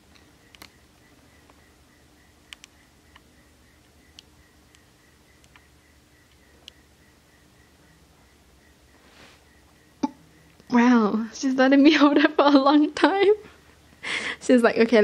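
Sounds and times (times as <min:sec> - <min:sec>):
faint pulsing high tone: 0:00.0 - 0:14.9
faint sharp clicks: 0:02.5 - 0:03.3.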